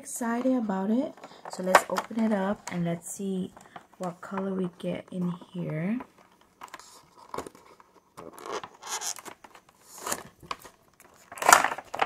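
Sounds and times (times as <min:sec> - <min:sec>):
plastic packaging crinkling: 0:05.4 - 0:12.0.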